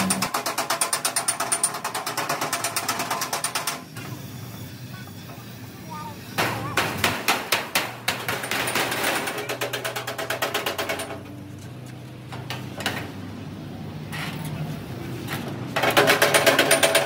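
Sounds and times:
rapid hammering on metal: 6.4s - 11.2s, 15.8s - 17.0s.

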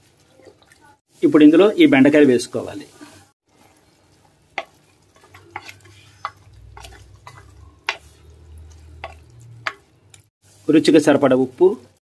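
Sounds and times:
ladle stirring in clay pot: 3.0s - 10.6s.

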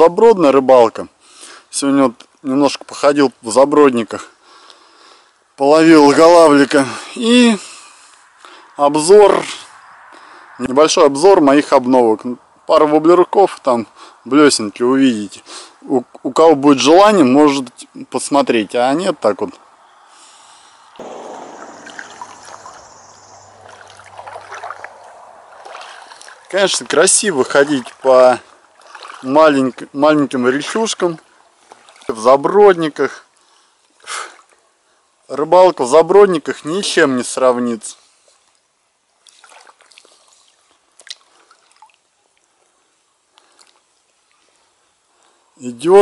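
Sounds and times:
shallow river water trickling: 0.8s - 45.8s
water splashing around waders: 21.0s - 32.6s, 39.2s - 42.6s.

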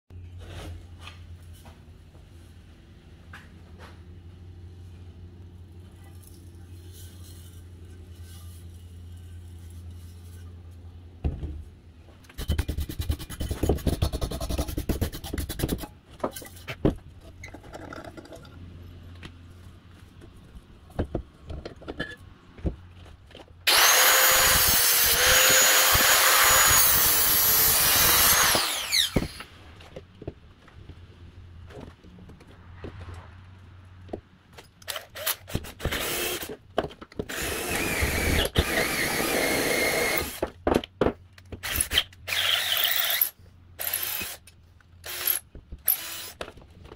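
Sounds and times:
angle grinder cutting metal: 23.7s - 29.4s.

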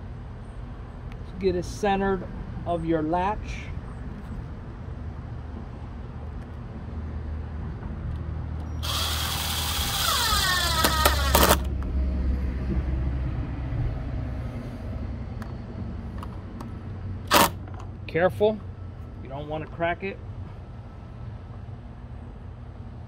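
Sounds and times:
cordless drill driving screw: 8.8s - 11.7s, 17.3s - 17.6s.

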